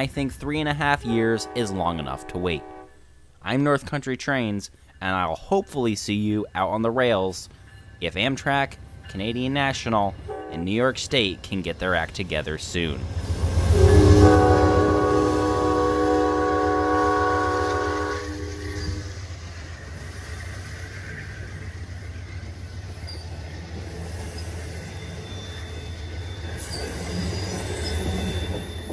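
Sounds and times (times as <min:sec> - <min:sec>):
train horn blast: 0:00.9 - 0:03.2, 0:10.3 - 0:10.7, 0:13.5 - 0:19.2
locomotive engine rumble: 0:08.7 - 0:27.7
wheel squeal: 0:24.3 - 0:28.9.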